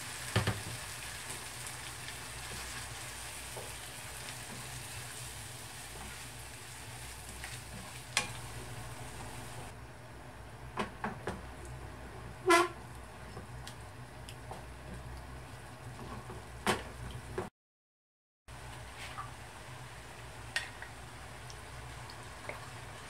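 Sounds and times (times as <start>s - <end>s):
food sizzling in a frying pan: 0.0s - 9.8s
spatula stirring and scraping: 2.1s - 8.5s.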